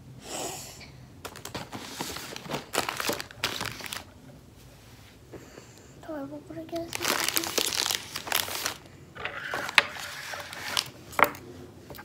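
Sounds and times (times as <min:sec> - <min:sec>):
wrappers crinkling and rustling: 0:01.2 - 0:04.2, 0:06.6 - 0:11.4.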